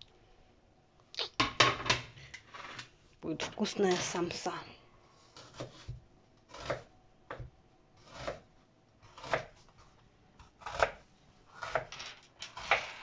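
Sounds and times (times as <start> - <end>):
knife slicing onion on wooden board: 5.2 - 9.6, 10.4 - 11.9.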